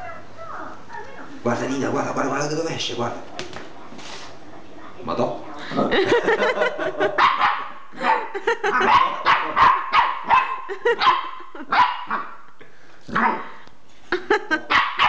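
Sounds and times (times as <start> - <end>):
puppy barking: 7.0 - 12.4, 13.1 - 13.5, 14.7 - 15.0.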